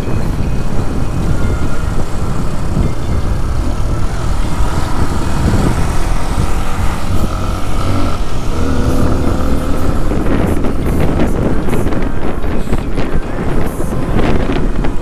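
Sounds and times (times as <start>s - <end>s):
wind and road rumble: 0.0s - 15.0s
motorcycle engine running: 0.5s - 12.1s.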